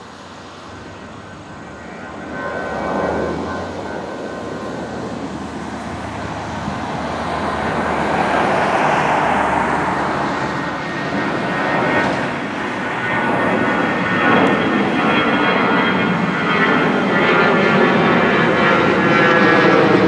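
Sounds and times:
faint jet engine whine: 0.0 - 20.0
jet engines rushing: 0.0 - 20.0.

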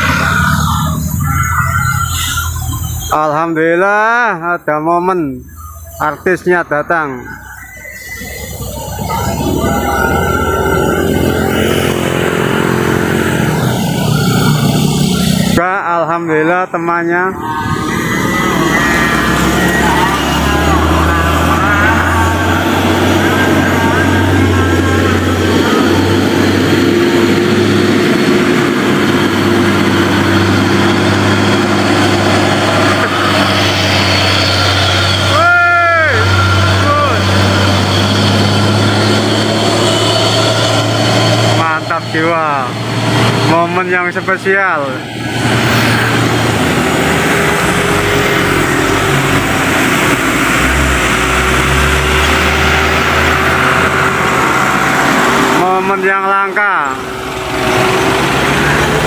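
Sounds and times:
motorcycles passing: 0.0 - 59.0
road noise: 0.0 - 59.0
truck diesel engine under load: 0.0 - 59.0.

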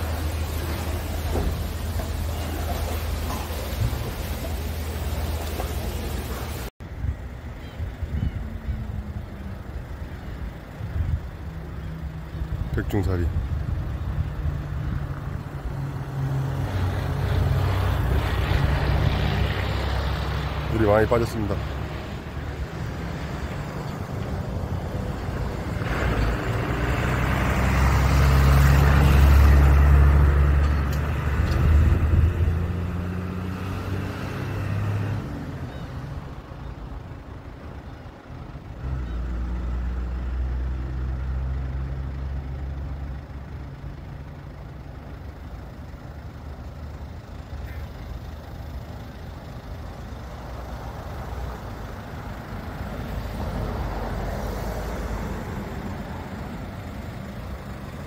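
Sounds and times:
heavy vehicle engine humming: 0.0 - 58.0.

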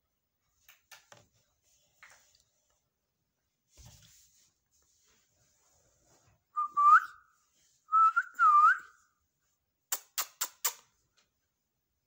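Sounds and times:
whistled notes: 6.5 - 9.1.

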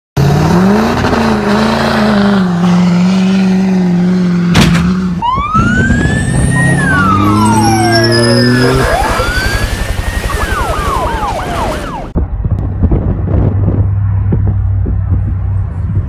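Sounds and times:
diesel engine running hard: 0.2 - 11.6
wailing siren-like tones: 5.1 - 12.2.

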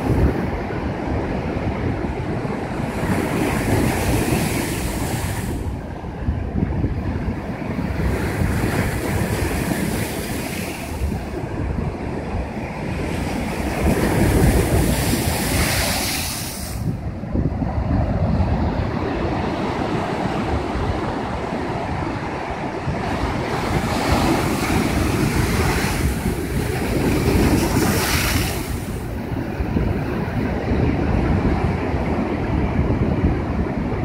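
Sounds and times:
wind noise on microphone: 0.0 - 34.0.

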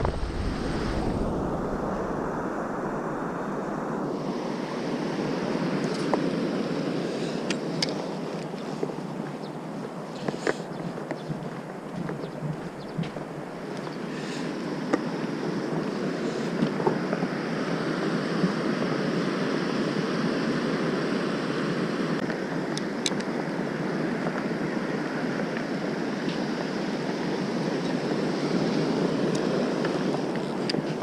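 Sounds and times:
waves washing onto beach: 0.0 - 10.7, 12.6 - 31.0
wind on microphone: 0.0 - 21.0.

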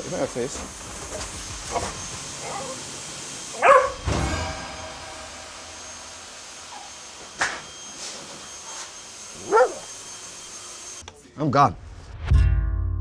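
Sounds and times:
dog barking: 1.7 - 2.8, 3.6 - 4.0, 9.4 - 9.9.

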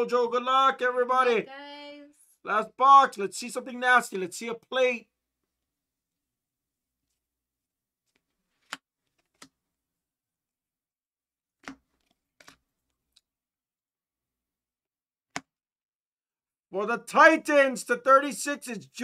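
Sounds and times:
trading cards clicking and snapping: 8.1 - 9.6, 11.6 - 12.6.

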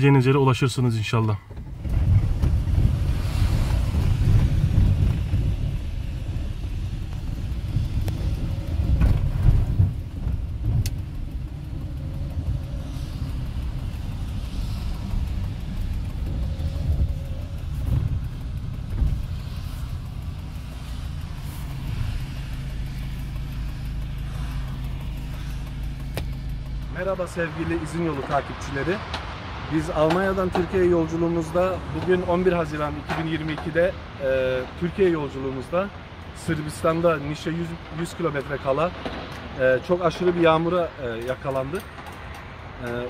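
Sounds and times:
car rumble: 0.0 - 43.0
wind buffeting microphone: 1.5 - 35.0.

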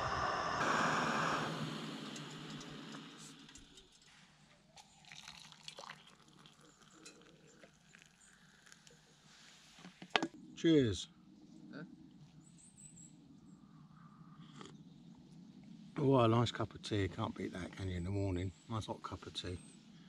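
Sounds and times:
gas stove burner hissing: 0.0 - 4.0
water trickling into steel mug: 4.8 - 9.0.

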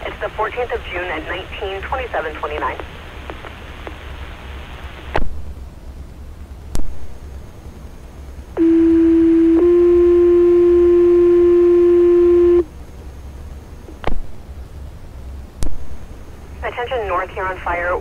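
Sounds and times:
radio carrier hiss: 0.0 - 5.2, 15.7 - 18.0
two-tone radio page tones: 8.6 - 12.6.

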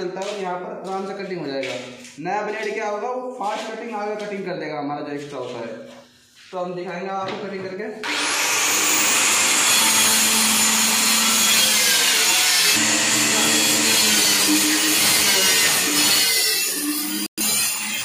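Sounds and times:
circular saw cutting plywood: 8.0 - 18.0.

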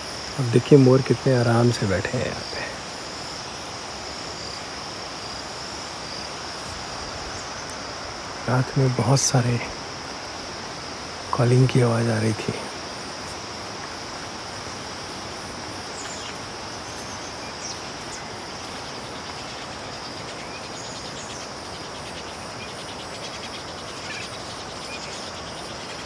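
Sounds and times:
high-pitched insect drone: 0.0 - 26.0
steady rain hiss: 0.0 - 26.0
faint bird chirps: 15.9 - 26.0.

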